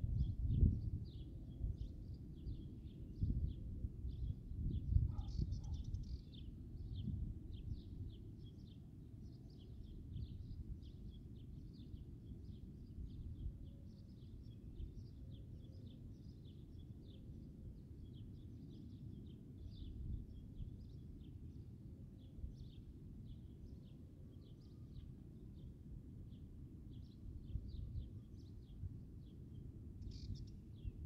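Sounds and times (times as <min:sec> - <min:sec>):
wind buffeting microphone: 0:00.0 - 0:08.2
small birds chirping: 0:00.2 - 0:31.0.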